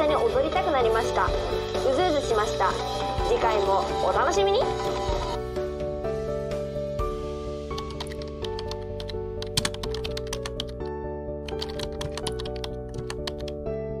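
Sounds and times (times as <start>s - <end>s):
soft background music: 0.0s - 14.0s
keyboard typing clicks: 7.8s - 10.8s, 11.5s - 13.6s.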